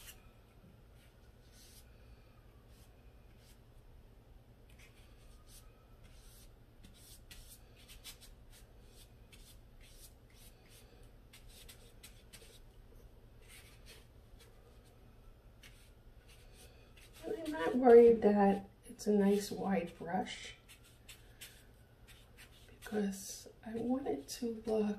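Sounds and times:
brush scratching on paper: 1.0 - 1.9, 2.7 - 3.6, 4.7 - 12.6, 13.4 - 14.9, 15.6 - 17.9, 19.2 - 23.0.

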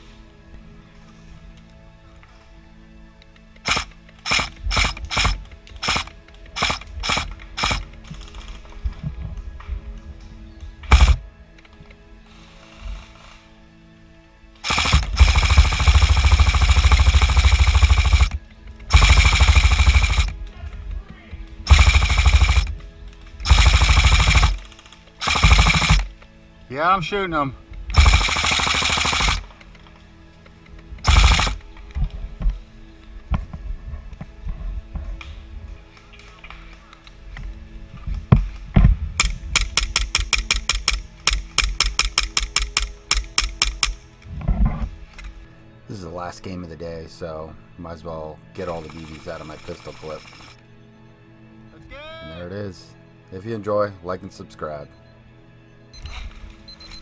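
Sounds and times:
airsoft gun firing bursts: 3.6 - 8.2, 10.8 - 11.2, 14.6 - 20.4, 21.7 - 22.8, 23.4 - 26.2, 27.9 - 29.6, 31.0 - 31.6, 39.2 - 44.0, 49.0 - 50.6.

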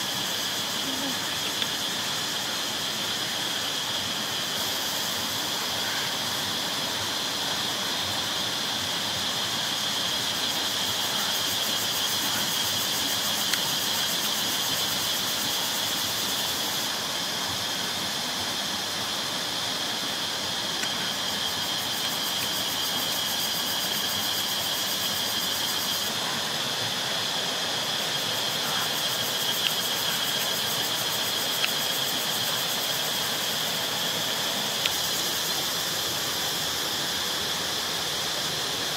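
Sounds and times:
high-pitched insect chorus: 0.0 - 38.9
faint clicks: 1.2 - 1.8.

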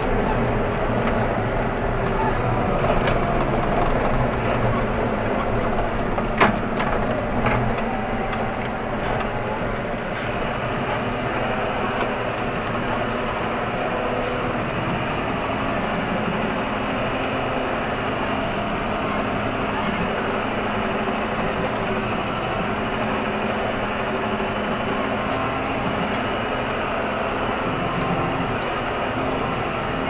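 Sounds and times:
tractor diesel engine running: 0.0 - 30.0
turn signal beeps: 1.2 - 12.1.

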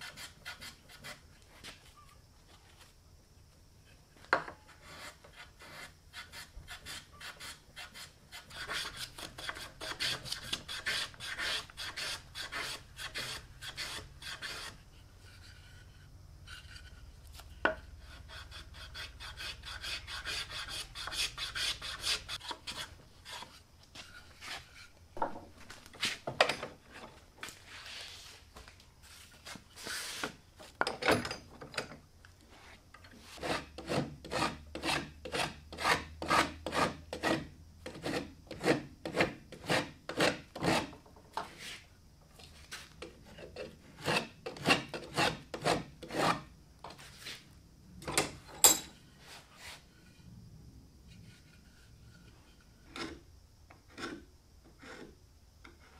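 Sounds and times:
wood rasp scraping wood: 0.0 - 1.2, 4.6 - 24.9, 33.2 - 41.0, 43.2 - 46.5.

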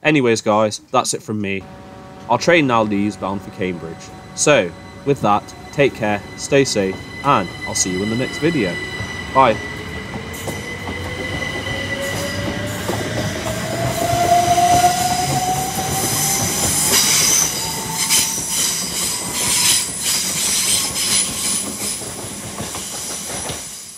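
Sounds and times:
train motor whine rising: 1.6 - 22.0
train wheels knocking on track: 2.1 - 23.9.

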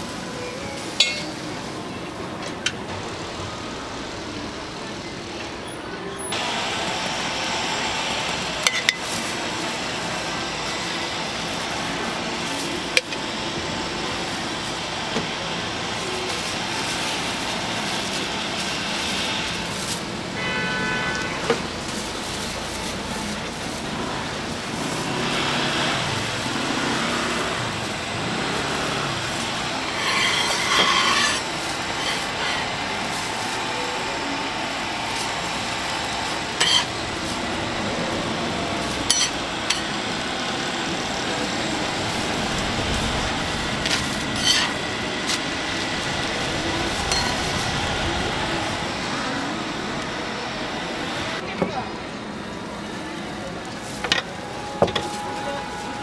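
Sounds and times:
metal spatula scraping griddle: 24.6 - 33.5, 35.8 - 37.4, 38.8 - 39.9, 43.8 - 46.3, 46.9 - 47.6.

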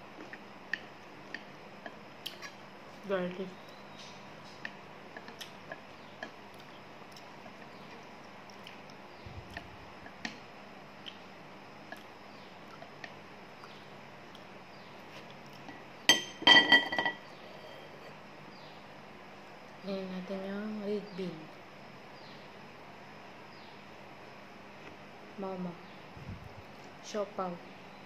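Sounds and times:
loud ringing clinks on plate: 16.1 - 17.2.

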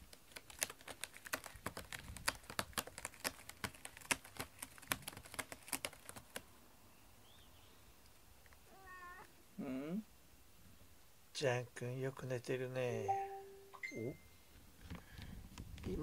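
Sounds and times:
cat clawing cardboard scratcher: 0.0 - 6.4.

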